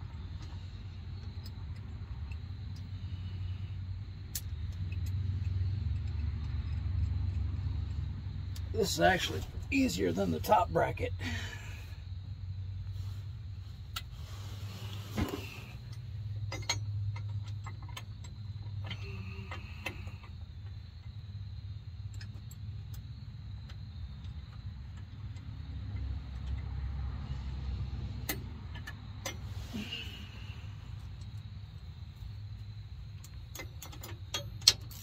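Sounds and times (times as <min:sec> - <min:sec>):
steady low hum: 0:00.0 - 0:35.0
wrench metal clicks and taps: 0:33.2 - 0:35.0.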